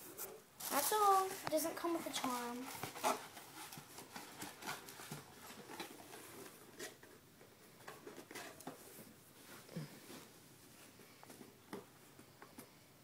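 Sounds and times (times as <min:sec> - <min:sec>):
rustling packing peanuts: 0:00.6 - 0:07.0.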